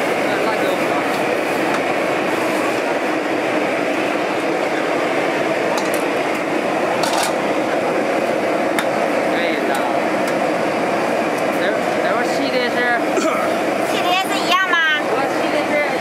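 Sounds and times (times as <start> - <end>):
gas burner flame rushing: 0.0 - 16.0
utensils clinking on steel pots: 7.0 - 7.4.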